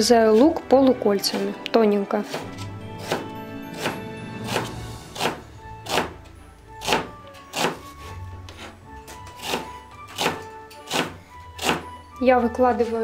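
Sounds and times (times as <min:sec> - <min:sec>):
knife slicing onion: 0:00.0 - 0:01.6, 0:02.2 - 0:06.2, 0:06.8 - 0:08.7, 0:09.3 - 0:11.9
background music: 0:00.0 - 0:13.0.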